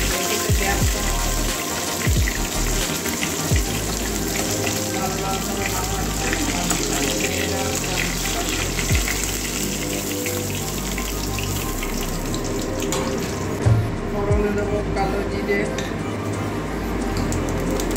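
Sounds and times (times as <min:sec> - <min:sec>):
fish sizzling in hot oil: 0:00.0 - 0:13.6.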